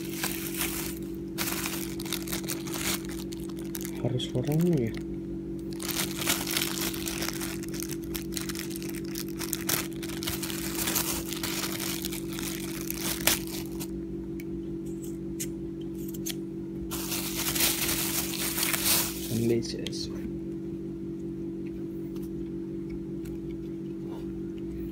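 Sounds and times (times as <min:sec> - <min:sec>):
plastic packaging crinkling: 0:00.0 - 0:13.9, 0:16.9 - 0:19.6
steady low hum: 0:00.0 - 0:24.9.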